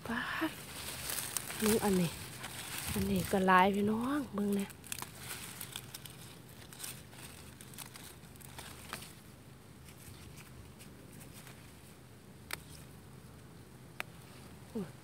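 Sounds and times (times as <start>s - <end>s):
rustling leaves: 0.0s - 15.0s
stems snapping: 0.7s - 9.2s, 12.4s - 12.9s.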